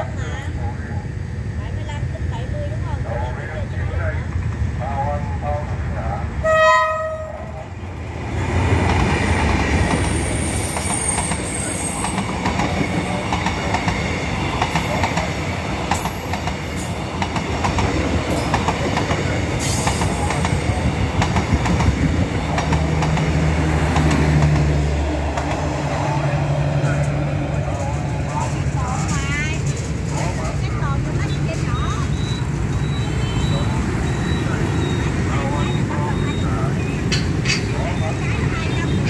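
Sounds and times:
locomotive rumbling past: 0:00.0 - 0:39.0
locomotive horn blast: 0:06.4 - 0:07.6
train wheels clacking on rails: 0:08.2 - 0:39.0.

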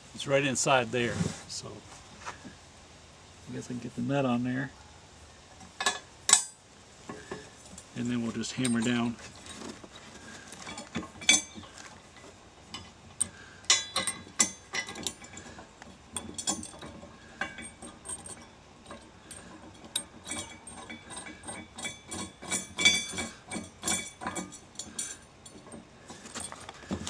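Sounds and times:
metal clinks: 0:05.8 - 0:27.0.

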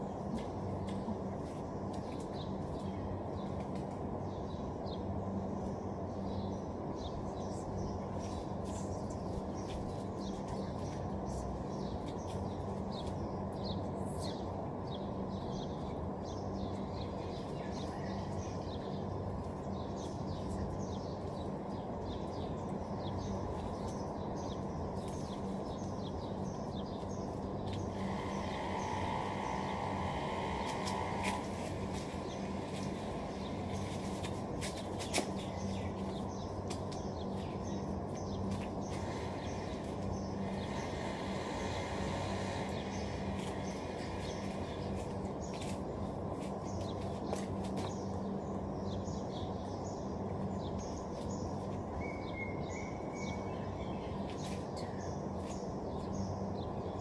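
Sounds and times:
low hum and rumble: 0:00.0 - 0:57.0
small birds chirping: 0:00.0 - 0:57.0.

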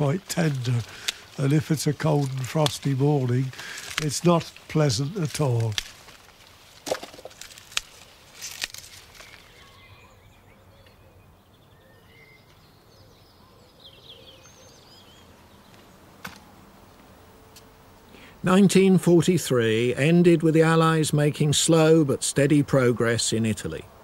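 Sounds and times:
sprouts snapping off stalk: 0:00.0 - 0:09.6
bird chirps: 0:09.1 - 0:15.9.

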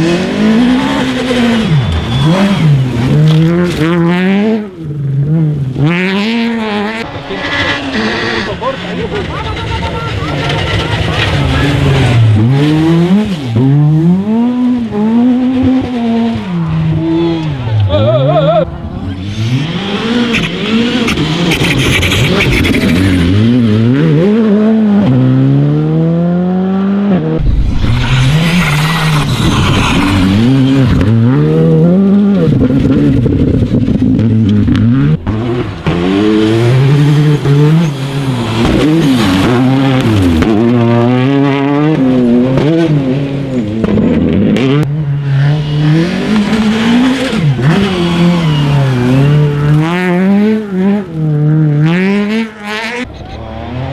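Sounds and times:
rally car engines revving: 0:00.0 - 0:53.9.

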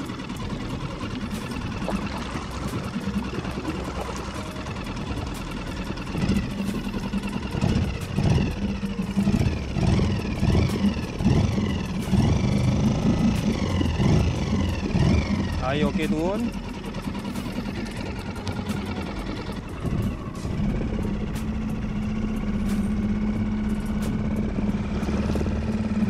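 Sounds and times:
outboard motor running: 0:00.0 - 0:26.0.

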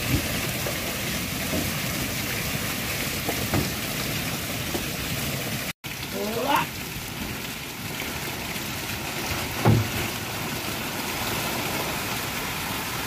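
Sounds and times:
dull thump: 0:09.6 - 0:10.1.

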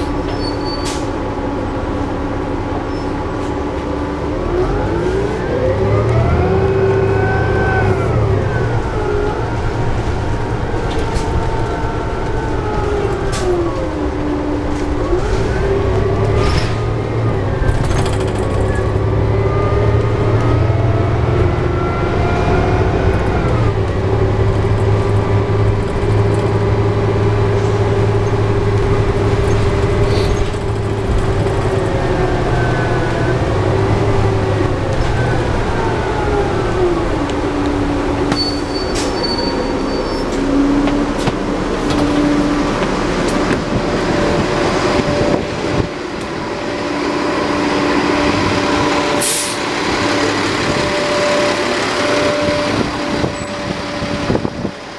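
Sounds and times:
bus engine hum: 0:00.0 - 0:54.9.

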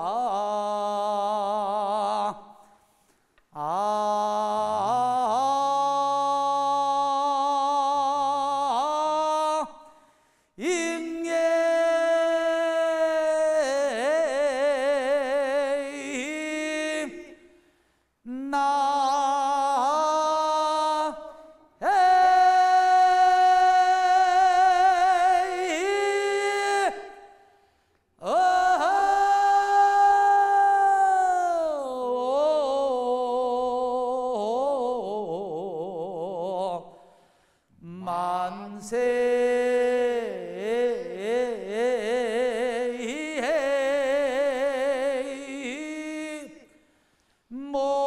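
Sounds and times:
singer breathing: 0:02.6 - 0:03.4, 0:09.8 - 0:10.6, 0:17.4 - 0:18.3, 0:27.4 - 0:28.2, 0:36.9 - 0:37.8, 0:46.6 - 0:47.5
person singing unaccompanied: 0:03.6 - 0:09.8, 0:18.3 - 0:27.3, 0:28.2 - 0:36.8.

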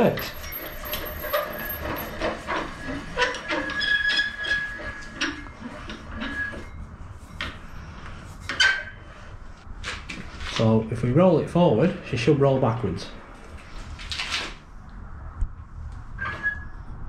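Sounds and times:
thin squeak: 0:00.0 - 0:09.3, 0:16.2 - 0:17.0.

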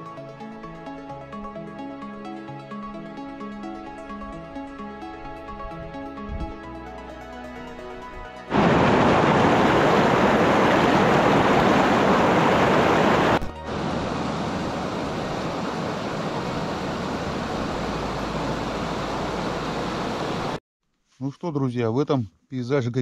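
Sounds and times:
steady outdoor hiss: 0:08.5 - 0:20.6
water rushing over boulders: 0:08.5 - 0:20.6.

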